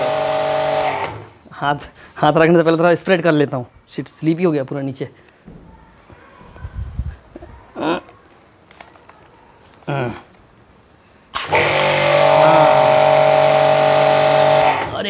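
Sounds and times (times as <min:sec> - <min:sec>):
pump humming: 0:00.0 - 0:01.3, 0:11.4 - 0:15.0.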